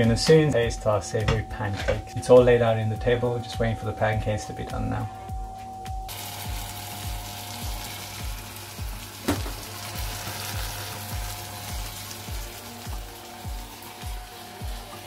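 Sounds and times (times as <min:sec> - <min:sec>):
background music with beat: 0:00.0 - 0:15.0
crepe sizzling in a pan: 0:06.1 - 0:15.0.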